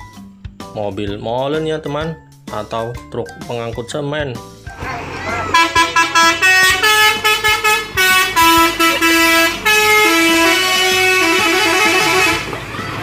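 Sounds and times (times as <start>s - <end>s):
musical vehicle horn melody: 4.8s - 12.6s.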